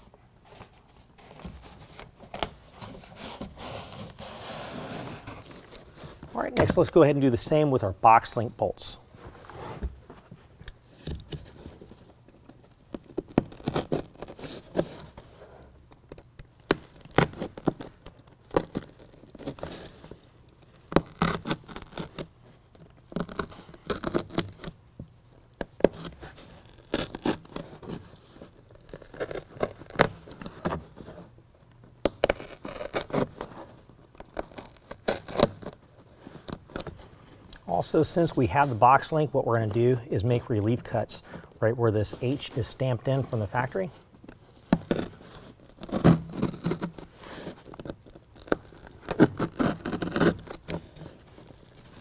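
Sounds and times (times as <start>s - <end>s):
rubbing and scraping of bed liner: 0.0s - 6.9s, 9.2s - 10.0s, 11.5s - 15.6s, 25.6s - 31.4s, 32.0s - 52.0s.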